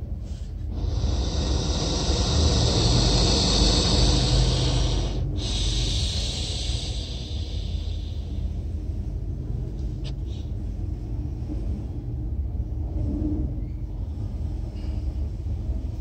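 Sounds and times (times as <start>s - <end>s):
steady low rumble: 0.0s - 16.0s
lizard hissing: 0.7s - 8.6s.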